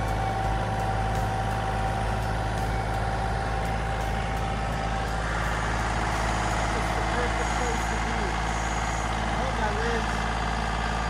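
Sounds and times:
high whine: 0.0s - 11.0s
tractor diesel engine running: 0.0s - 11.0s.

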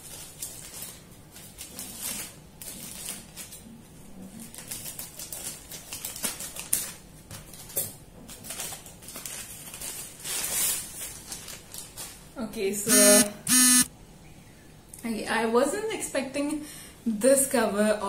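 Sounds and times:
plastic crinkling and rustling: 0.0s - 12.5s.

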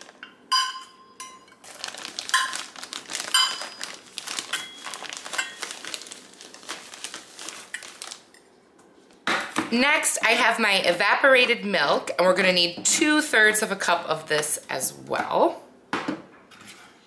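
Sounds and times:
plastic bag crinkling: 0.0s - 0.2s, 1.6s - 8.5s
metal cup clinks: 0.5s - 1.5s.

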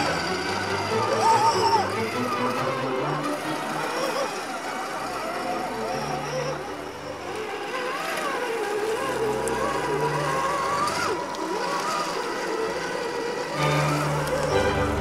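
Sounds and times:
background music: 0.0s - 4.1s, 13.5s - 15.0s
electric motor whining: 0.0s - 15.0s.

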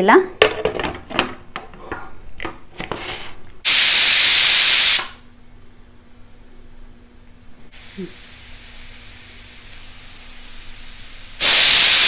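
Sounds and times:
pressure cooker steam hissing: 3.7s - 5.2s, 7.8s - 12.0s.

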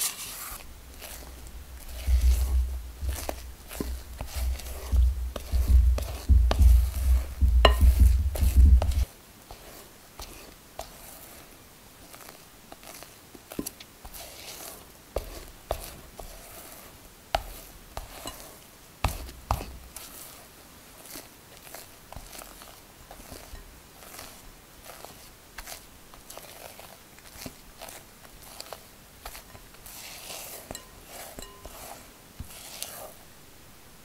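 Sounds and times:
spatula scraping glass bowl: 0.0s - 11.3s, 14.1s - 16.8s, 17.4s - 20.3s, 21.0s - 33.2s
low rumble: 2.0s - 9.0s.

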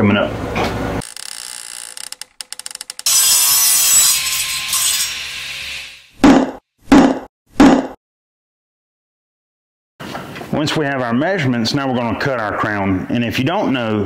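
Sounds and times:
sawing wood: 1.0s - 6.2s.

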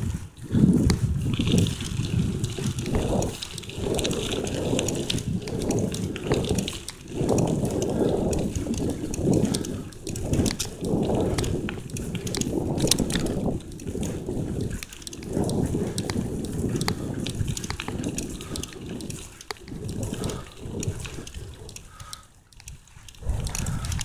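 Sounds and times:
bicycle clicks and rattles: 0.0s - 24.0s
wind rumble on microphone: 0.0s - 24.0s.

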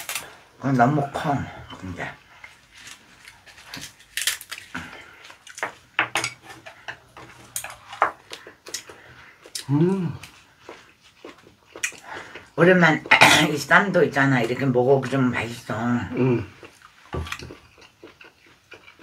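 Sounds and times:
chewing: 6.7s - 13.2s, 16.1s - 19.0s
person humming: 9.6s - 10.3s.

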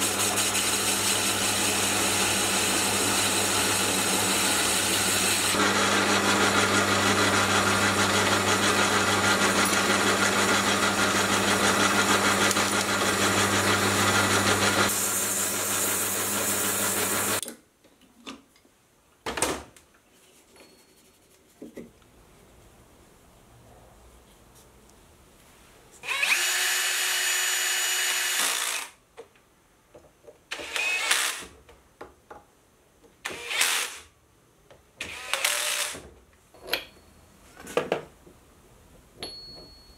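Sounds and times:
cordless drill driving screws: 26.0s - 29.0s, 30.5s - 31.5s, 33.3s - 34.0s, 35.0s - 36.0s.

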